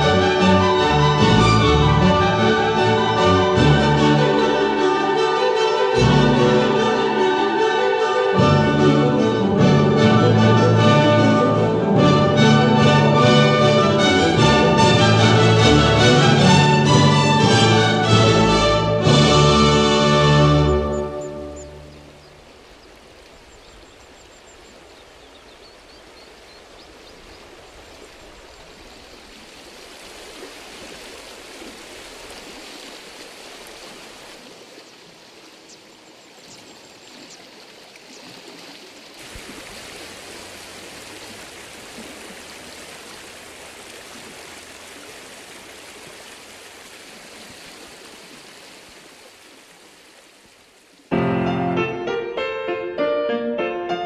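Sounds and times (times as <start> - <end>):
piano music: 0.0 - 22.2, 51.1 - 54.0
river water rushing: 0.0 - 51.1.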